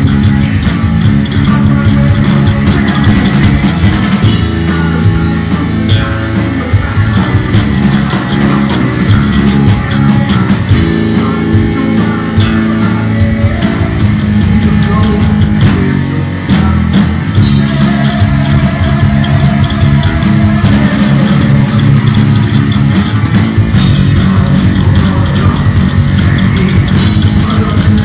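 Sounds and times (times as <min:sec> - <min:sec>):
drum kit: 0:00.0 - 0:28.0
electric guitar: 0:00.0 - 0:28.0
man singing lead vocals: 0:00.0 - 0:28.0.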